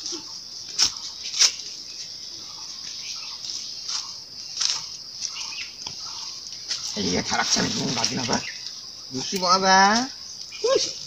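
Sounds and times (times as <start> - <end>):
high insect chorus: 0.0 - 11.0
knocks and scuffs of footsteps: 0.6 - 7.0.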